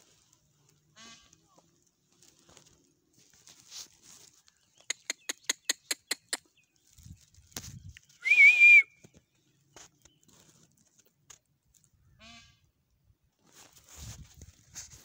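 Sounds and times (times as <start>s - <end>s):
peacock calling: 0.9s - 1.5s, 12.0s - 12.7s.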